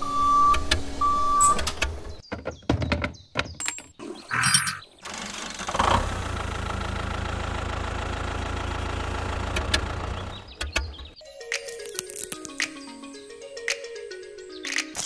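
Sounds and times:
toy tractor engine rumble: 4.5s - 11.2s.

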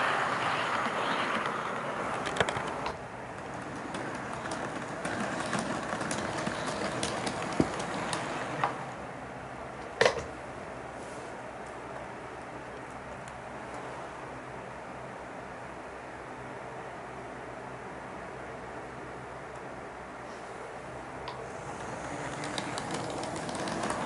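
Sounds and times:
model train wheels clicking: 0.0s - 9.0s, 21.3s - 24.0s
model train running noise: 0.0s - 9.4s, 20.7s - 24.0s.

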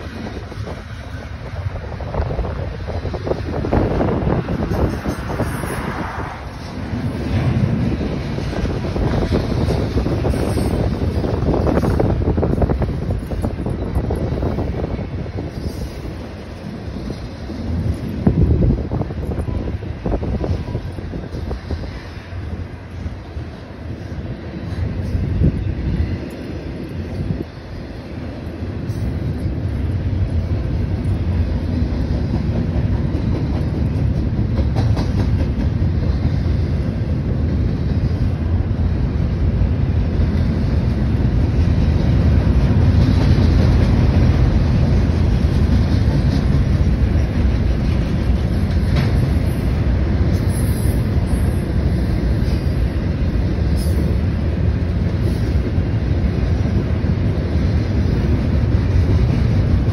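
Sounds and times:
steel wheels rumbling on rail: 0.0s - 59.9s
train wheel clicks: 28.2s - 36.7s, 40.2s - 59.9s.

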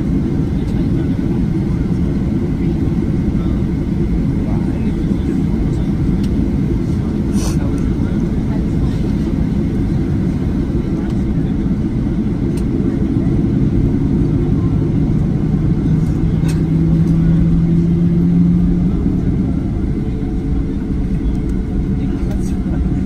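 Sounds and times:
jet airliner low rumble: 0.0s - 23.0s.

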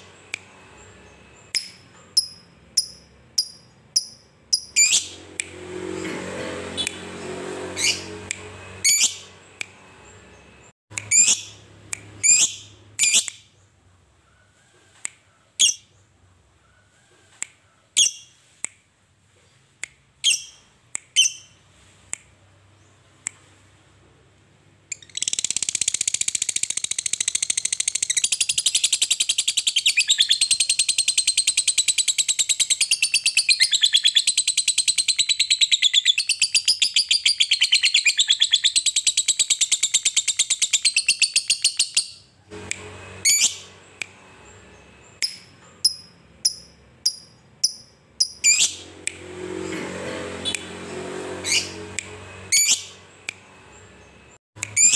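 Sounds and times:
lovebird sharp chirps: 0.0s - 5.2s, 8.8s - 9.8s, 10.9s - 13.5s, 15.6s - 15.9s, 18.0s - 18.4s, 20.2s - 21.6s, 24.9s - 42.3s, 43.2s - 43.7s, 45.2s - 48.8s, 52.5s - 53.4s, 54.6s - 54.9s.

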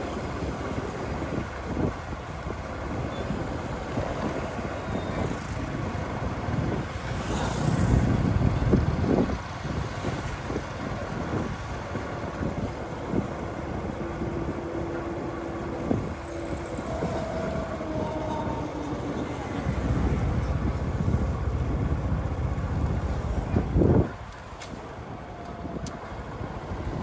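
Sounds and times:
road noise of traffic: 0.0s - 27.0s
wind buffeting microphone: 0.0s - 27.0s.

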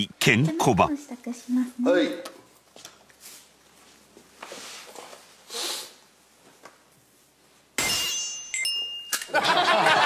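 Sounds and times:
bright ringing chime: 7.9s - 9.4s.

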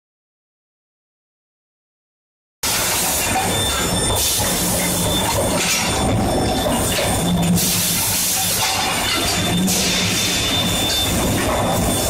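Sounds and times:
steady high-pitched tone: 2.7s - 12.0s.

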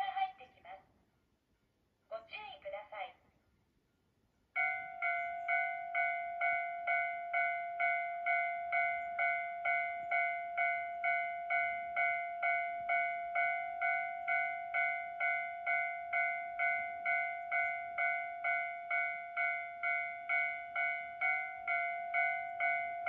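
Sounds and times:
level crossing warning bell: 4.6s - 23.0s.

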